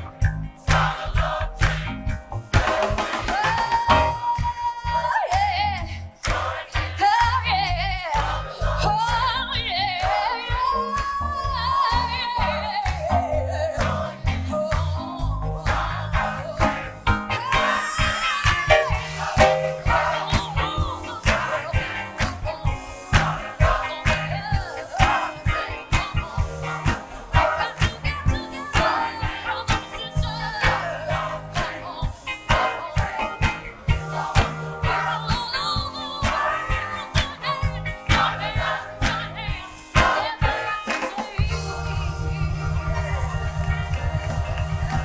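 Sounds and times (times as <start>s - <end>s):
band beat and bass line: 0.0s - 45.0s
gospel choir singing: 0.0s - 45.0s
lead voice singing with vibrato: 2.6s - 45.0s
bouncing bass line: 41.5s - 45.0s.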